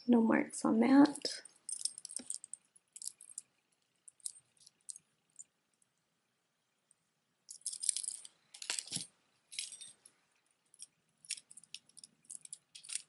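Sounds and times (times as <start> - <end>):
metal jewelry chains jangling: 1.4 - 3.4, 7.5 - 10.1, 10.7 - 13.0.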